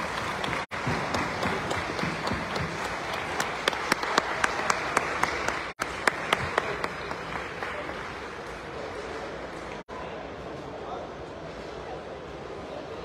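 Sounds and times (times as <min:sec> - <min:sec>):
small group clapping: 0:00.0 - 0:09.9.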